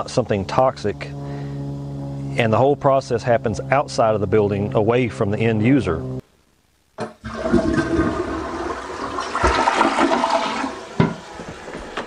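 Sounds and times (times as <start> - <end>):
water gushing from drain pipe: 7.2 - 12.0.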